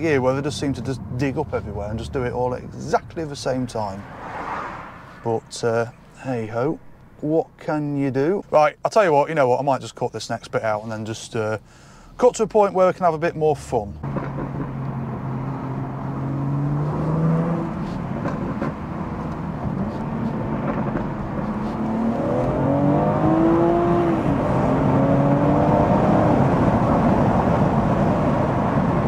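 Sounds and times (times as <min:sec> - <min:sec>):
road noise: 0:00.0 - 0:29.0
car engine accelerating: 0:13.9 - 0:29.0.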